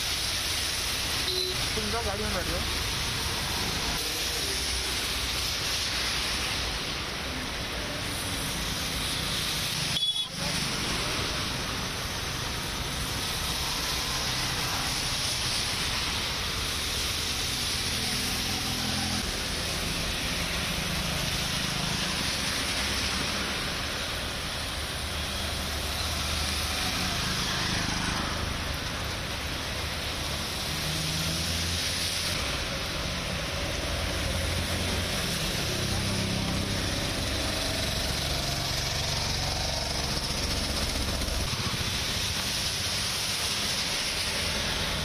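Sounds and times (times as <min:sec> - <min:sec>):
heavy rain: 0:00.0 - 0:45.0
vehicle engines passing: 0:17.5 - 0:45.0.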